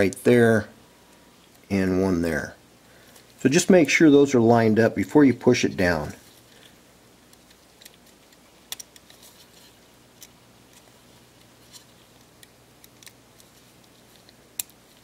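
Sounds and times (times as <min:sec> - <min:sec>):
plastic parts clicking and tapping: 0:07.3 - 0:09.2, 0:12.2 - 0:15.0.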